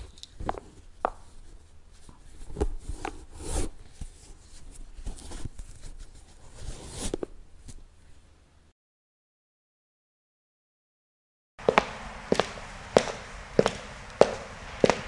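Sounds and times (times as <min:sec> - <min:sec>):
shoelaces rubbing and scraping: 0:00.0 - 0:07.9, 0:11.6 - 0:15.0.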